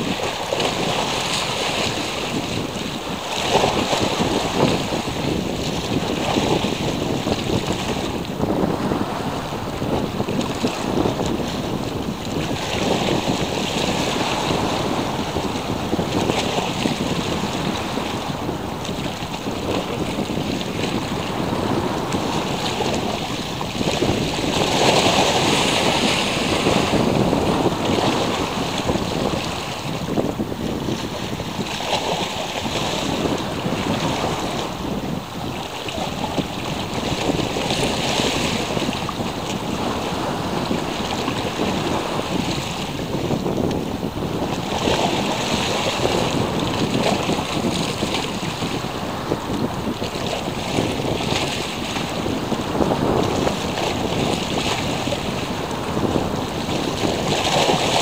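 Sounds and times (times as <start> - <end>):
sea waves breaking: 0.0 - 58.0
wind buffeting microphone: 0.0 - 58.0.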